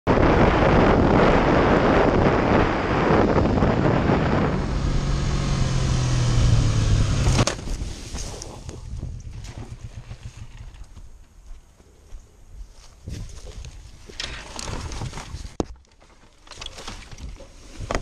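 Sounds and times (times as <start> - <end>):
wind rushing over helmet: 0.1 - 10.7
motorcycle engine running: 0.2 - 11.2.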